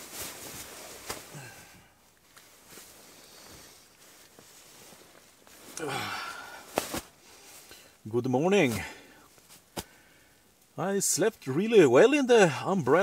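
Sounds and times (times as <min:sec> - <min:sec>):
sleeping bag rustling: 0:00.0 - 0:08.0
person yawning: 0:01.3 - 0:01.8, 0:05.8 - 0:06.6.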